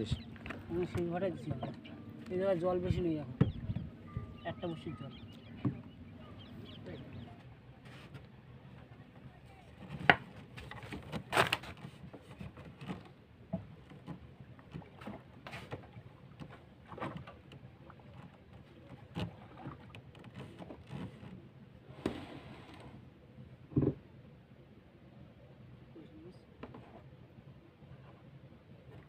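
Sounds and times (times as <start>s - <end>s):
boat knocks: 0.0s - 21.4s, 23.6s - 24.1s.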